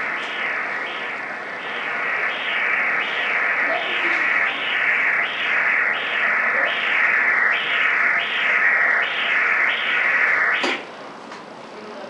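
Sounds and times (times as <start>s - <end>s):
doppler ultrasound whoosh: 0.0s - 10.9s.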